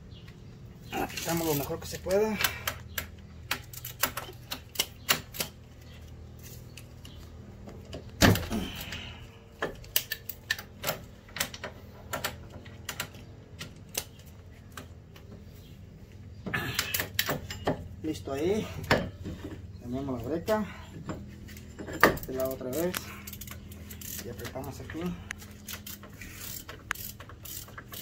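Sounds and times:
metal clicks of brake pad: 2.4 - 9.0, 9.6 - 15.4, 16.6 - 17.9.

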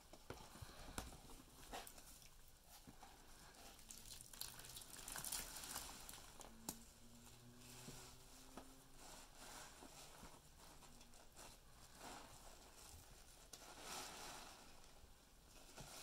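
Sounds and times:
wet sponges squished by hand: 3.7 - 6.3.

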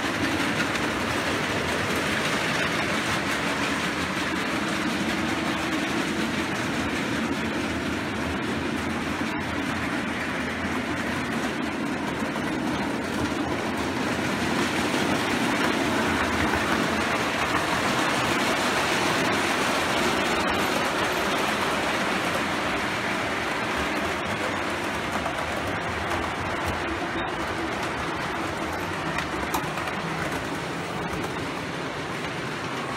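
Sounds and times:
model trains rolling on track: 0.0 - 32.9.

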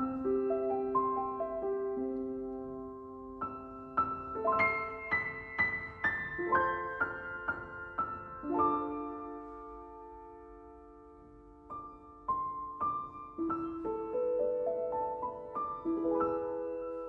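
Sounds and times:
slow solo piano melody: 0.0 - 17.0.

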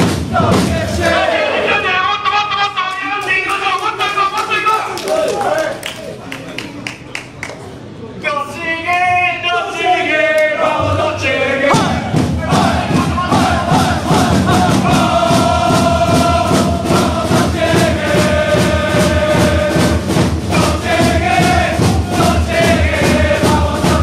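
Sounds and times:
crowd chanting in unison: 0.0 - 2.3, 9.4 - 24.0
fast steady beat: 11.7 - 24.0.

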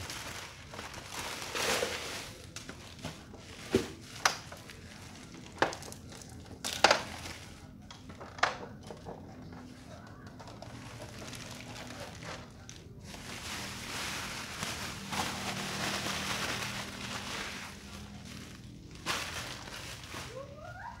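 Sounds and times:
plastic wrapping crinkling: 0.0 - 7.8, 10.1 - 21.0.

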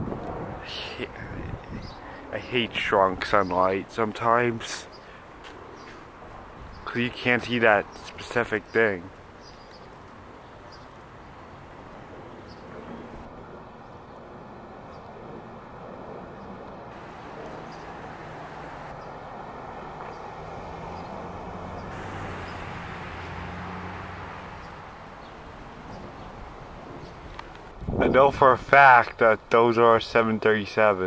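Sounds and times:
jet airliner passing overhead: 0.0 - 6.6, 11.0 - 27.7.

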